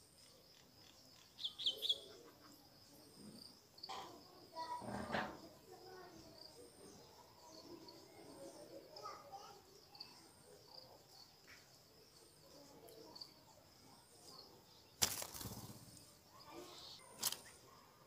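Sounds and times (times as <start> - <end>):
birds chirping softly: 0.0 - 18.0.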